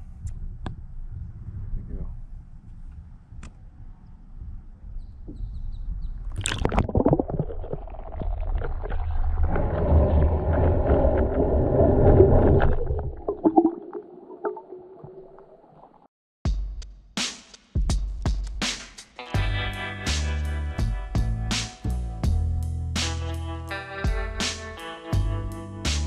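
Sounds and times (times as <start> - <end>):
underwater rumbling and gurgling: 5.9 - 16.1.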